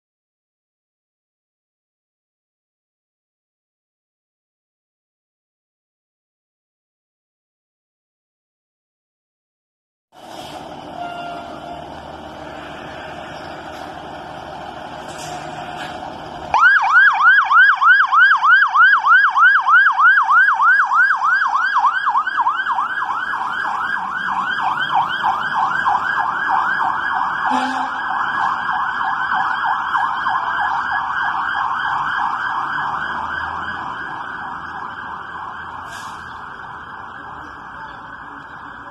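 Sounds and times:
fire engine siren yelping: 10.2s - 38.9s.

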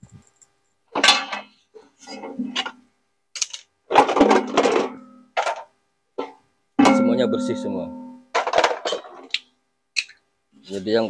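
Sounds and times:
metal washing machine drum clanking: 6.8s - 8.6s.

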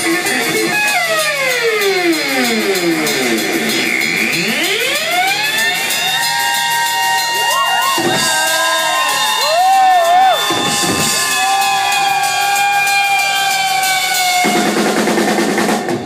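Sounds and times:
electric guitar feedback: 0.0s - 8.2s
crowd cheering: 4.3s - 16.0s.

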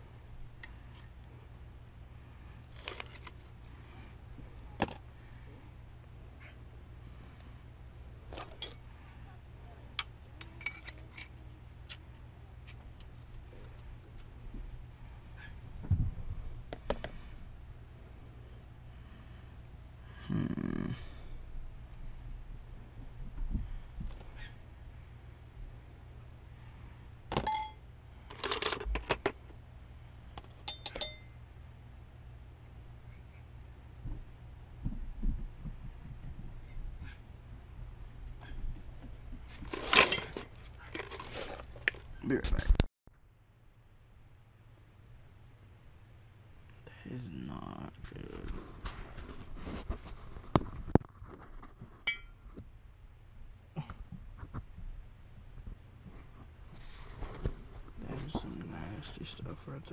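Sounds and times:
sharp knocks of metal parts: 8.3s - 8.9s, 27.3s - 29.3s, 30.4s - 31.5s, 52.1s - 52.4s
metallic clink with ring: 8.4s - 8.9s, 27.4s - 27.8s, 30.7s - 31.6s, 52.1s - 52.4s
small metal pieces clinking: 27.4s - 28.9s.

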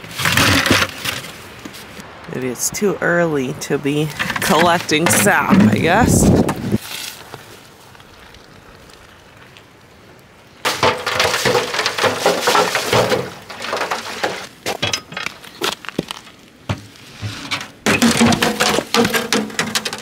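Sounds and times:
sap splashing into pans: 10.6s - 14.9s
wood clattering into stove: 10.7s - 15.4s, 16.7s - 20.0s.

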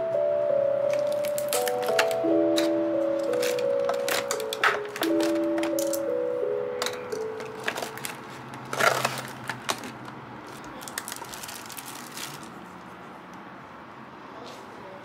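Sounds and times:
plastic packaging crinkling: 0.9s - 6.1s, 6.8s - 12.8s.

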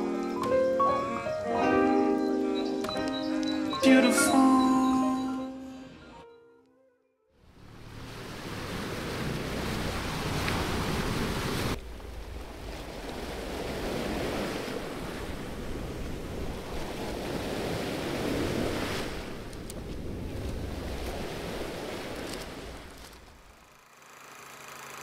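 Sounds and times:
wind rumbling on microphone: 7.8s - 23.4s
waves breaking on pebble beach: 8.0s - 23.3s.

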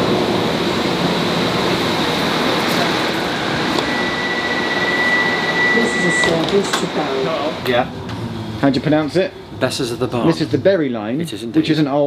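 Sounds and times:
high door beep: 3.5s - 7.4s.

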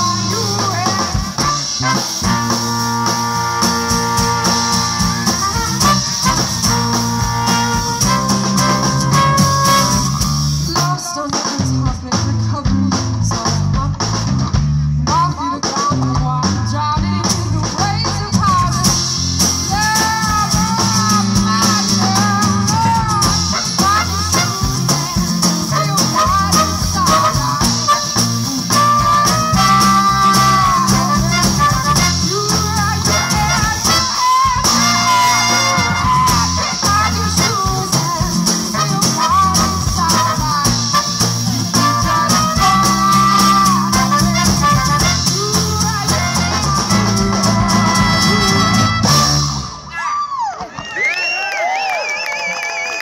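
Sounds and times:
horn section playing: 0.0s - 10.9s, 19.4s - 49.9s
woman singing: 0.0s - 49.4s
guitars: 0.0s - 49.9s
drums: 0.0s - 53.0s.

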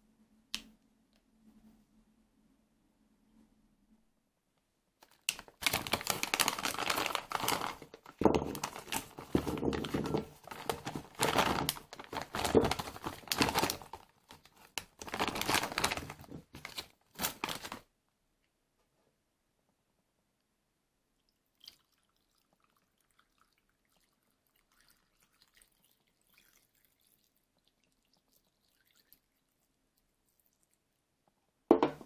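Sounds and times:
plastic bag crinkling: 5.0s - 17.9s.

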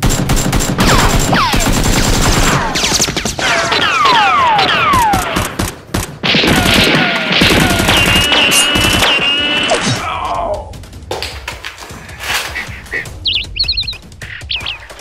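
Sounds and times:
rapid gunfire: 0.0s - 9.9s.

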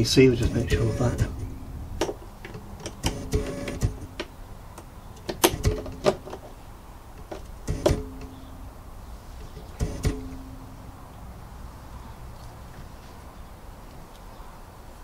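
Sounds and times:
low steady tone: 0.4s - 2.0s, 8.0s - 9.0s, 10.1s - 11.4s.

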